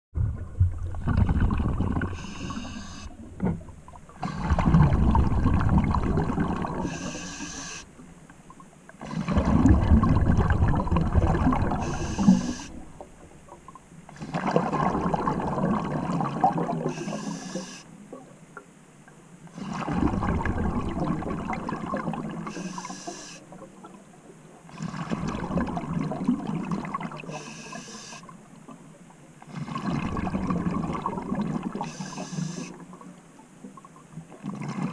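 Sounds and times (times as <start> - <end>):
exhaled bubbles rushing: 0.2 - 7.2, 9.0 - 13.1, 14.2 - 17.1, 19.6 - 22.6, 24.8 - 27.2, 29.6 - 32.0
regulator inhalation hiss: 2.1 - 3.2, 6.8 - 7.9, 11.8 - 12.8, 16.9 - 17.9, 22.5 - 23.4, 27.3 - 28.3, 31.8 - 32.8.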